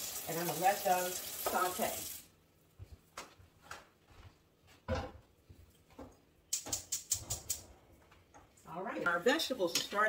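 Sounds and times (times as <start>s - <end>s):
sharp clicks: 6.5s - 7.6s.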